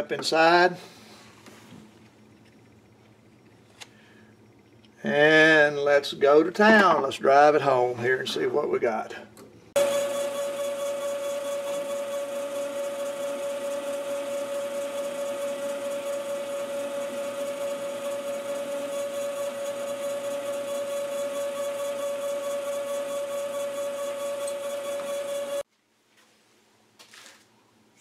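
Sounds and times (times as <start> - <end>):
bench lathe humming: 9.8 - 25.6.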